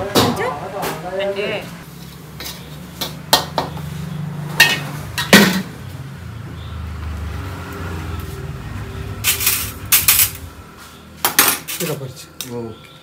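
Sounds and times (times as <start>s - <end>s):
wok clanking on steel plate: 4.6s - 5.7s.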